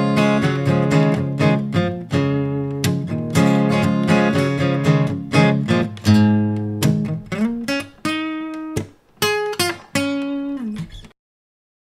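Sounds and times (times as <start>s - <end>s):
acoustic guitar plucked notes: 0.0s - 11.1s.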